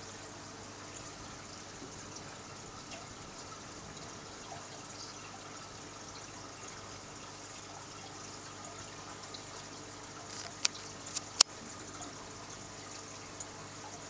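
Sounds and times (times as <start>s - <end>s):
aquarium water bubbling: 0.0s - 14.0s.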